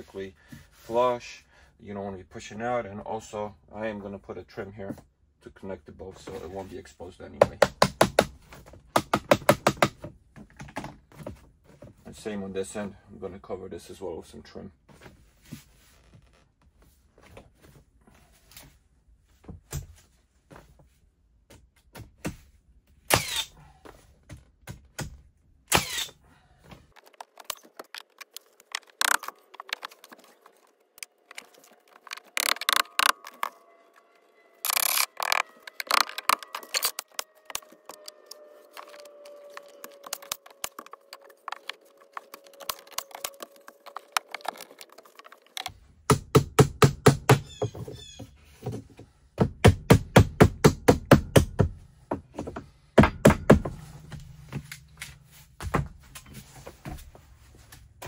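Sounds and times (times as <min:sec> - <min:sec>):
wooden boards knocking and rattling: 0:07.4 - 0:11.4, 0:38.8 - 0:57.1.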